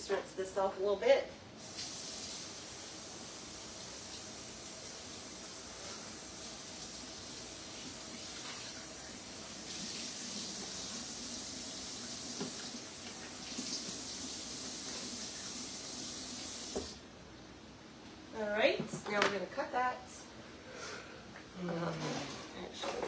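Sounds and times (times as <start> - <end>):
faucet running into sink: 9.6 - 17.0.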